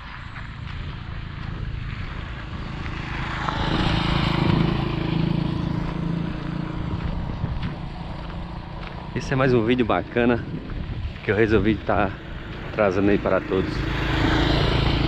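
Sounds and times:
small motorcycle engine running: 0.1 - 15.0.

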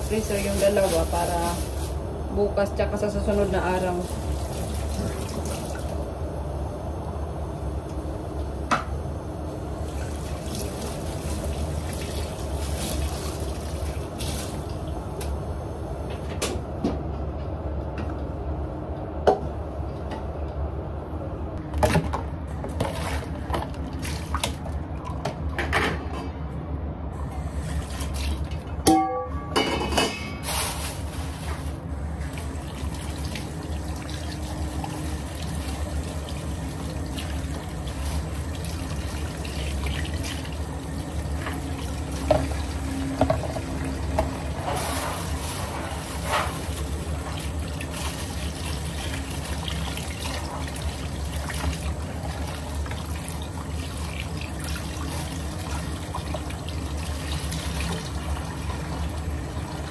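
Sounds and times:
tap water running into sink: 32.2 - 44.8.

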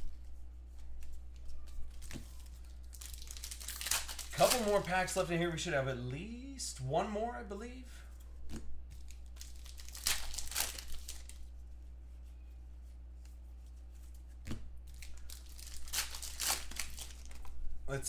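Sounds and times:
trading cards rustling: 0.0 - 5.4, 8.9 - 11.6, 14.9 - 17.6
steady low hum: 0.0 - 18.0.

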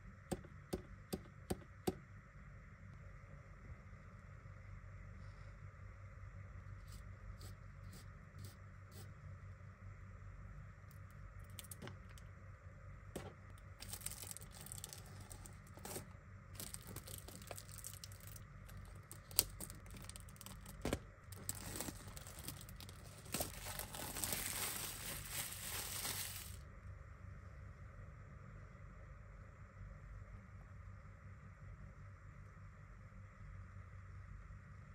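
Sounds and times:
plastic wrap crackling: 13.2 - 26.6.

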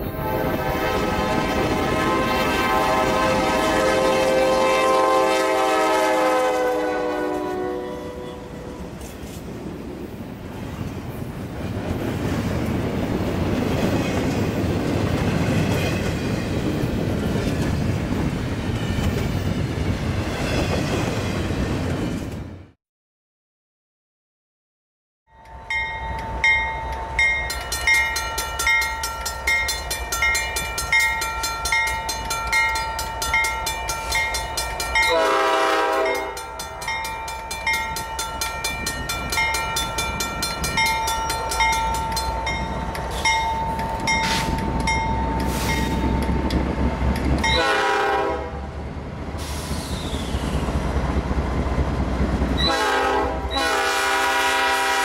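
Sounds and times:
locomotive chime horn: 0.0 - 8.9, 25.3 - 46.4, 47.4 - 48.7, 52.6 - 55.0
diesel locomotives rumbling: 0.0 - 22.8, 25.4 - 55.0
bell ringing: 25.3 - 35.2, 36.0 - 46.5.

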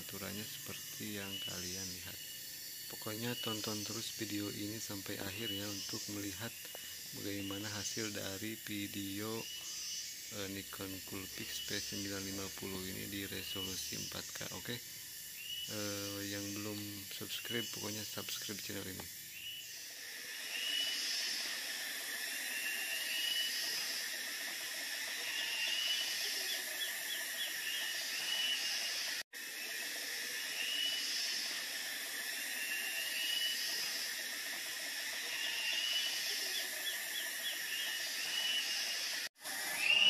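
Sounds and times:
steady high hiss: 0.0 - 40.0
birds calling: 20.5 - 29.2, 30.5 - 40.0.

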